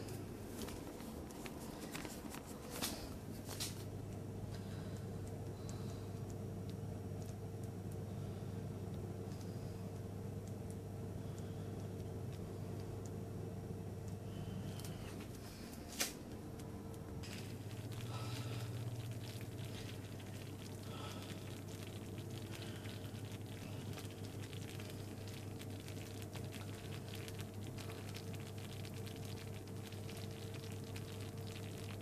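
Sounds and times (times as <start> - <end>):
steady low hum: 0.0 - 32.0
jam bubbles popping: 17.2 - 32.0.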